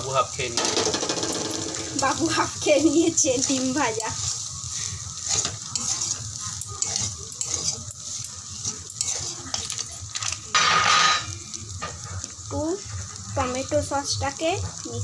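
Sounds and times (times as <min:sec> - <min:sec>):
metal spatula scraping a pan: 0:00.6 - 0:12.3.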